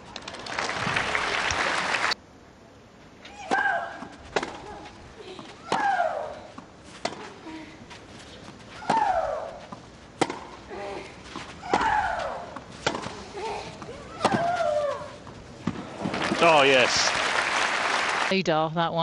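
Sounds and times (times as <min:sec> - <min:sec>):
tennis ball being struck: 0:03.5 - 0:04.7, 0:10.2 - 0:10.6, 0:12.8 - 0:13.2, 0:14.2 - 0:14.7.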